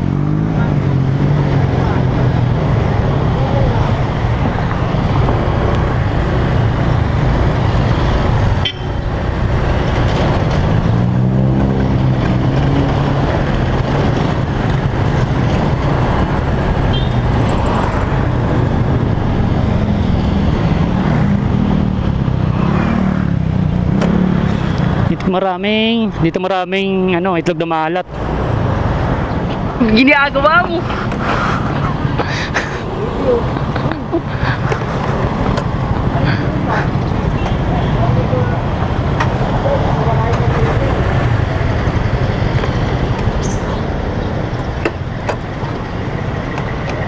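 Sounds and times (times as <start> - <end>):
motorcycle engine accelerating: 0.0 - 4.2, 4.8 - 25.1
road and wind noise: 0.0 - 47.0.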